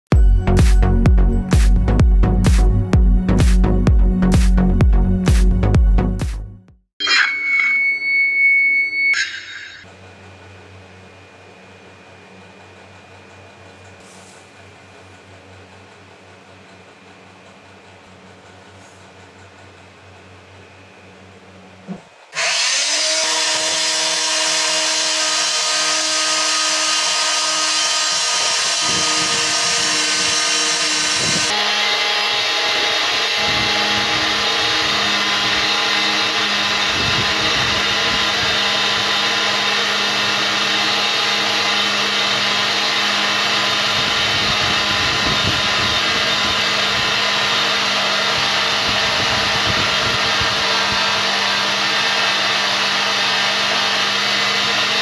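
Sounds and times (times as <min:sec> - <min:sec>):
band saw cutting steel: 0:07.0 - 0:09.9, 0:22.3 - 0:55.0.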